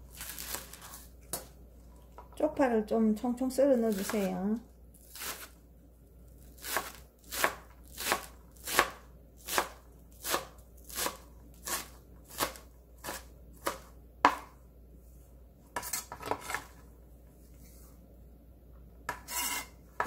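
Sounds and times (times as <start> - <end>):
knife chopping on plastic board: 6.6 - 14.6
knife scraping board: 15.8 - 16.8, 19.1 - 19.8.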